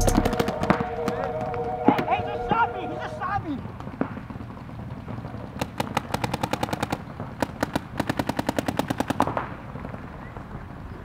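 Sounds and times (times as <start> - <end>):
paintball marker firing: 3.8 - 9.6.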